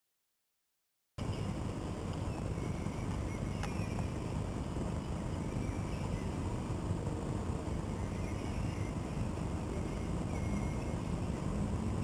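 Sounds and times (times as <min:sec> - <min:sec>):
wind rumble on microphone: 0:01.2 - 0:12.0
faint bird chirps: 0:01.3 - 0:04.4, 0:05.2 - 0:06.5, 0:07.8 - 0:11.5.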